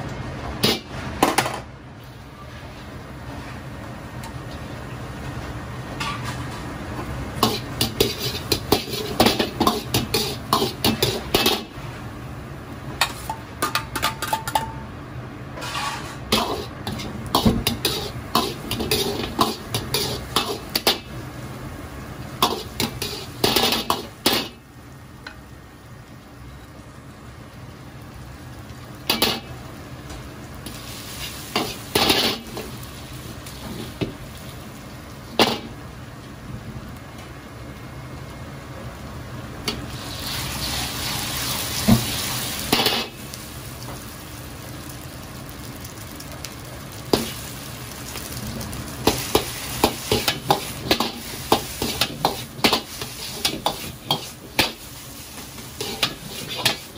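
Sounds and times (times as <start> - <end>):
metal ladle scraping wok: 7.4 - 11.7, 15.6 - 21.0, 49.0 - 56.9.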